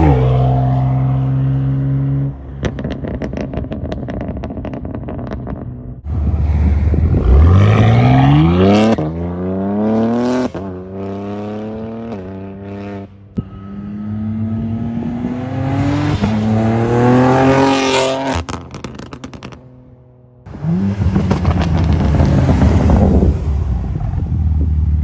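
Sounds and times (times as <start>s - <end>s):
car passing at speed: 12.6s - 18.5s.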